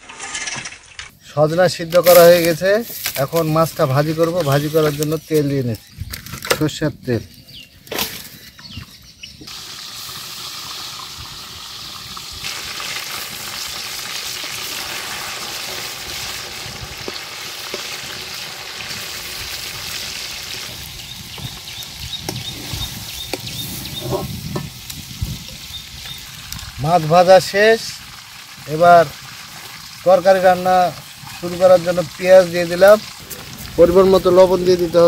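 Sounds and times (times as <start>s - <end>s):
fish sizzling in oil: 9.5s - 35.0s.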